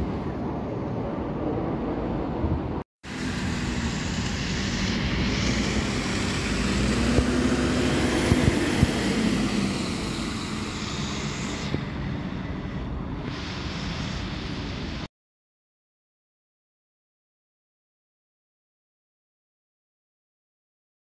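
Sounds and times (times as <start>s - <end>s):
bus engine driving past: 0.0s - 15.1s
tyres hissing on wet road: 3.0s - 15.1s.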